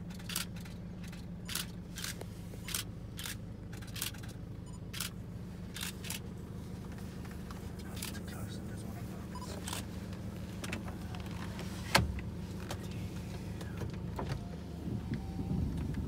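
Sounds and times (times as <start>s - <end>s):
low hum: 0.0s - 16.0s
camera shutter clicks: 1.5s - 5.2s.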